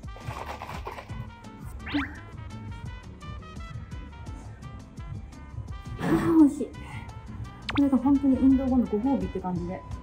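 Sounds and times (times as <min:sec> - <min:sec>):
upbeat background music: 0:00.0 - 0:10.0.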